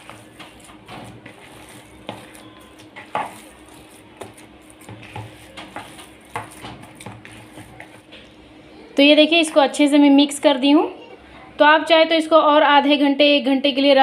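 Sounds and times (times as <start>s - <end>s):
hand kneading wet mince: 0.0s - 10.7s.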